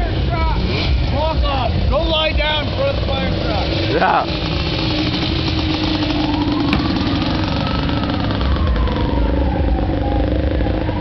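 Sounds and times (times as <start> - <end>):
engine running: 0.0 - 11.0
fire truck siren wail: 5.2 - 11.0.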